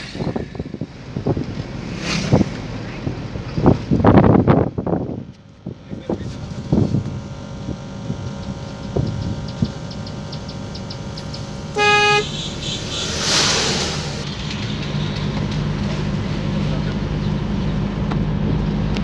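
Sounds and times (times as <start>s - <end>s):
vehicle engine and road hum: 0.0s - 19.0s
short horn honk: 11.7s - 13.1s
brief rush of noise: 12.8s - 15.1s.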